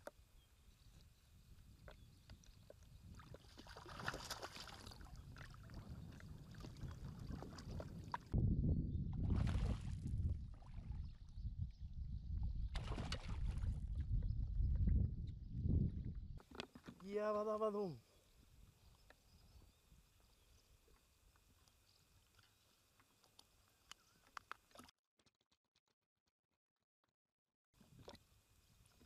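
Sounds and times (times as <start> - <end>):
water splashing and sloshing: 2.4 - 8.4, 9.1 - 11.3, 12.7 - 14.0.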